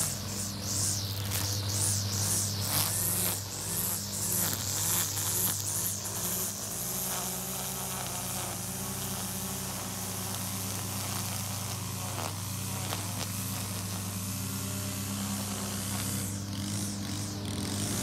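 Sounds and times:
mower engine running: 0.0s - 18.0s
string trimmer buzzing: 0.0s - 18.0s.

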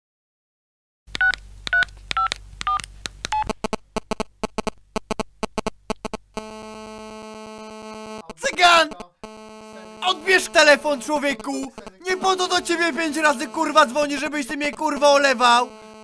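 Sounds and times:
phone keypad beeps: 1.2s - 3.5s
buzzing call tone: 5.5s - 16.0s.

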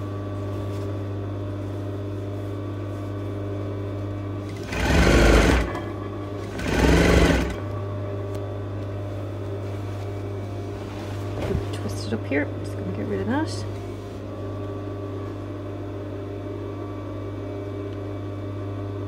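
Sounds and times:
steady hum: 0.0s - 19.0s
sewing machine stitching: 4.5s - 7.6s.

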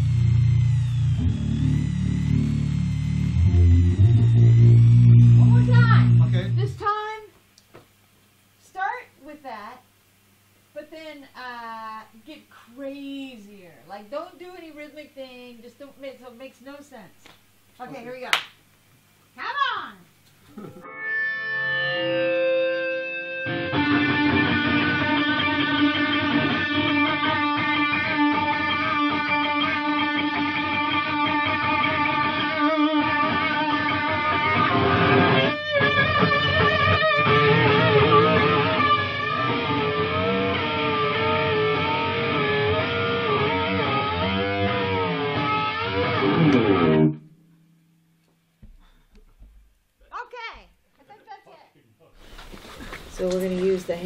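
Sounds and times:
electric guitar playing: 0.0s - 7.0s, 20.6s - 47.8s.

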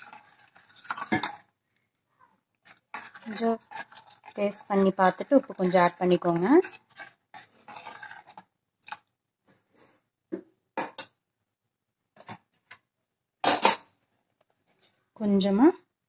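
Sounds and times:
metal spoon scraping a pot: 0.0s - 1.5s, 2.6s - 9.0s.

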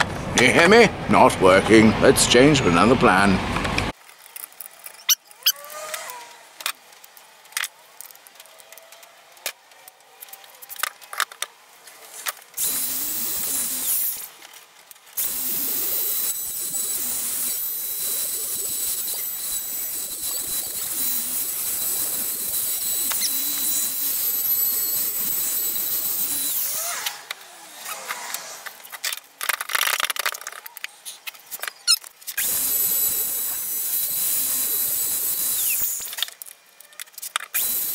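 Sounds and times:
trim router cutting wood: 12.6s - 14.3s, 15.2s - 28.7s, 32.4s - 36.3s, 37.5s - 37.9s.

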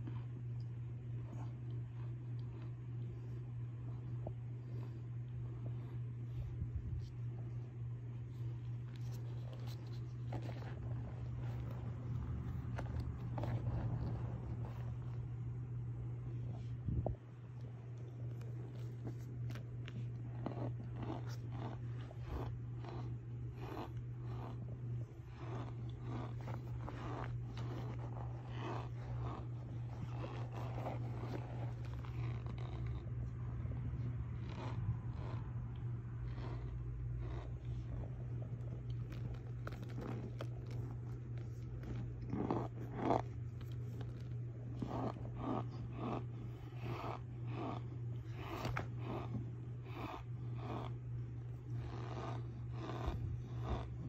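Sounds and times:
steady low hum: 0.0s - 54.0s
cornstarch crunching: 18.0s - 54.0s
cornstarch crunching and squeaking: 18.6s - 33.1s.

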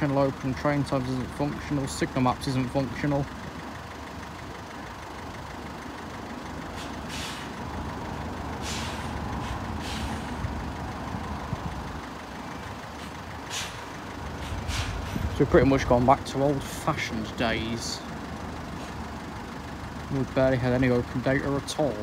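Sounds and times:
idling road traffic rumble: 0.0s - 22.0s
short hisses: 6.8s - 7.6s, 8.6s - 10.4s, 13.0s - 15.2s.

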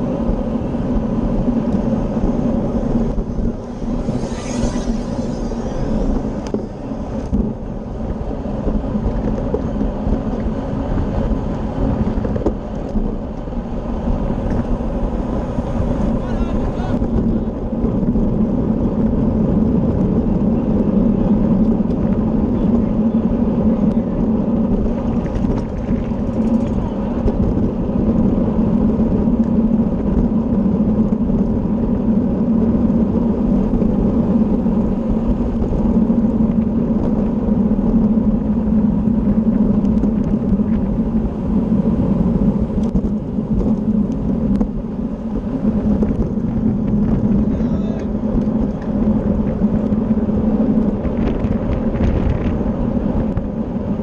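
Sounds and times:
low hum: 0.0s - 54.0s
road noise: 0.0s - 54.0s
wind rumble on microphone: 0.0s - 54.0s.

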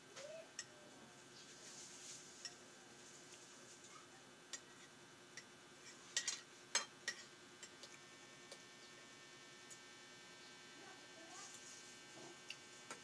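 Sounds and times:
cutlery clinking against dishes: 6.2s - 7.9s.

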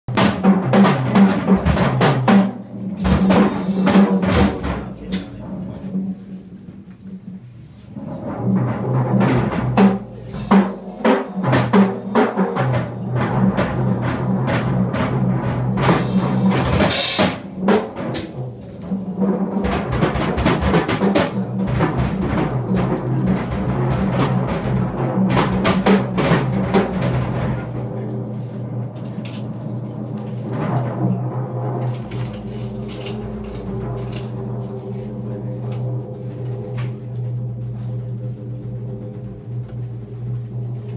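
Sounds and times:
busy drum kit: 0.0s - 40.9s
cymbal crashes: 9.4s - 40.9s
sustained low note: 21.4s - 40.9s.

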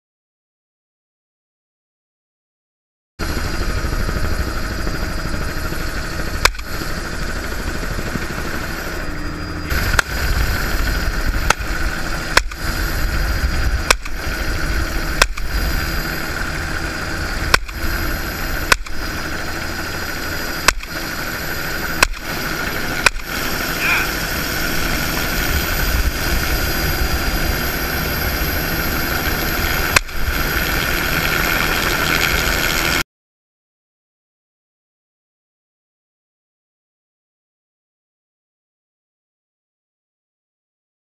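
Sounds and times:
helicopter turbine and rotor: 3.2s - 33.0s
shotgun firing: 12.3s - 12.7s, 13.8s - 14.2s, 15.2s - 15.5s, 18.7s - 19.0s, 22.0s - 22.3s, 23.0s - 23.4s.

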